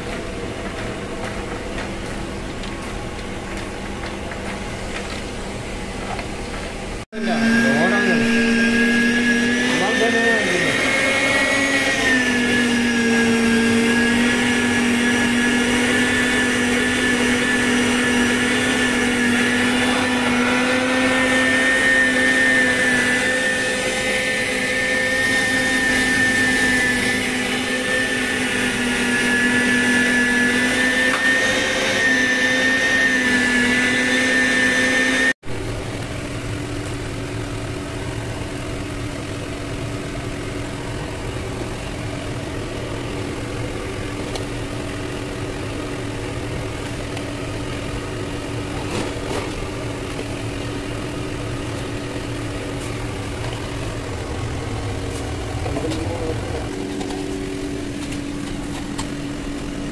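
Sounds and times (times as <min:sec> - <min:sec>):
electric meat grinder whining: 0:07.2 - 0:37.8.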